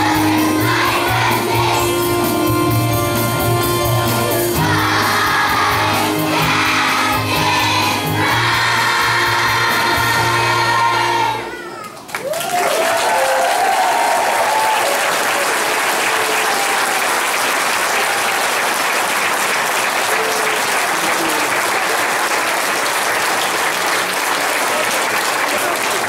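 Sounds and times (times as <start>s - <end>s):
children's choir singing: 0.0s - 11.6s
whoops and cheers: 11.6s - 17.2s, 17.9s - 18.5s
audience applause: 11.8s - 26.0s.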